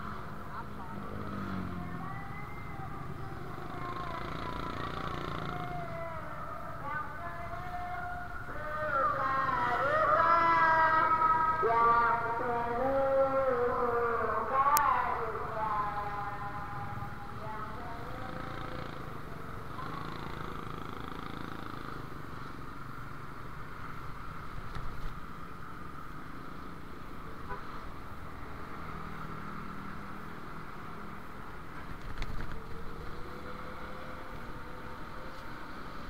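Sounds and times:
road noise: 0:00.0 - 0:36.0
traffic of motorbikes and vehicles: 0:00.0 - 0:36.0
motorcycle engine: 0:00.7 - 0:07.7, 0:15.0 - 0:24.0.

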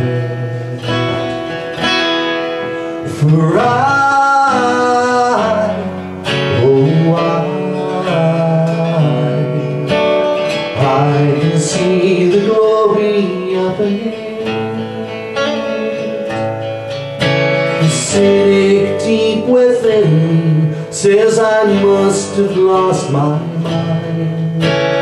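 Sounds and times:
man singing into a microphone: 0:00.0 - 0:01.6, 0:02.7 - 0:16.5, 0:17.6 - 0:25.0
acoustic guitar strummed: 0:00.0 - 0:25.0.

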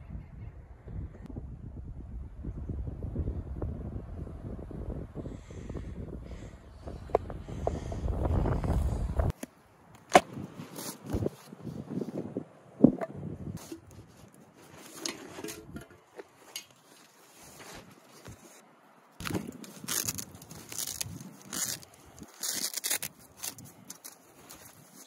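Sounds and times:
cloth pouches rustling: 0:13.6 - 0:18.6, 0:19.2 - 0:25.0.

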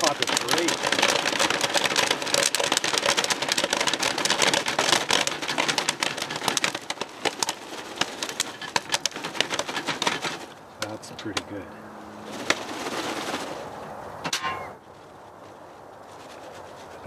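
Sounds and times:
popcorn popping: 0:00.0 - 0:11.5.

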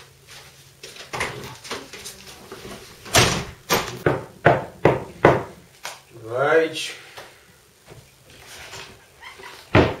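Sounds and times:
knocking on a door: 0:04.0 - 0:05.6, 0:09.8 - 0:10.0.

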